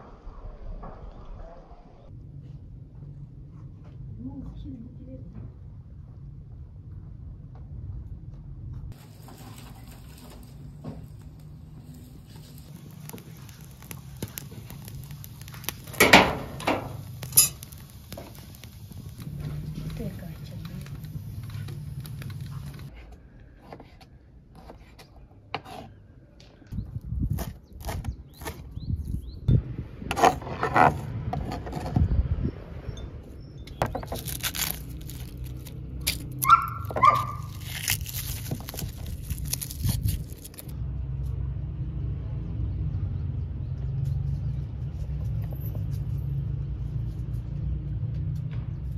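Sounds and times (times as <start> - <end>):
loud fire snaps: 8.9 - 22.9, 33.9 - 40.8
wood fire crackling: 8.9 - 22.9, 33.7 - 40.8
dog yelping: 36.4 - 37.5.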